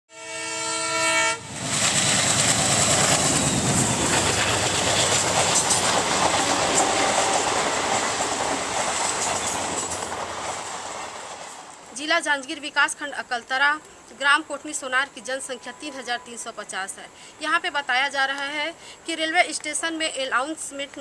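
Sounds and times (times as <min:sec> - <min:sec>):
train horn blast: 0:00.1 - 0:01.6
passenger train passing: 0:00.1 - 0:12.6
wheels clicking over rails: 0:02.1 - 0:11.8.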